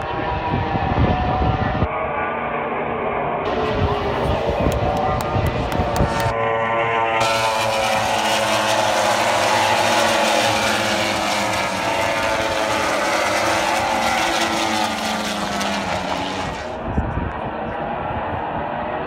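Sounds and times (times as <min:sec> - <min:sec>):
racing motorcycles passing: 0:03.5 - 0:16.8.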